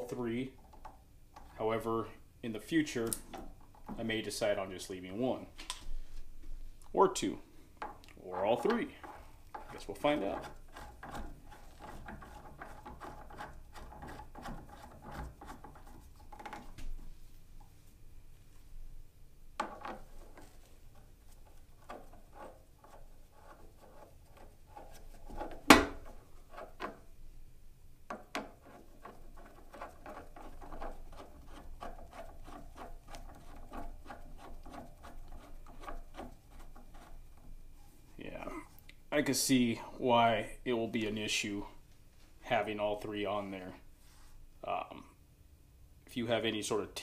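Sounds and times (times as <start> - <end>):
metal threads scraping: 8.2 - 16.7.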